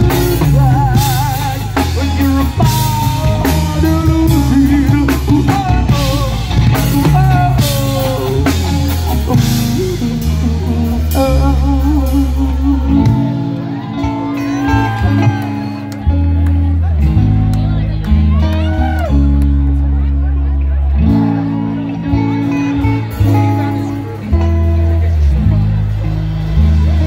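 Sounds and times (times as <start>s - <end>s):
person singing: 0.0s - 16.2s
drum kit: 0.0s - 17.6s
electric bass: 0.0s - 27.0s
electric guitar: 0.0s - 27.0s.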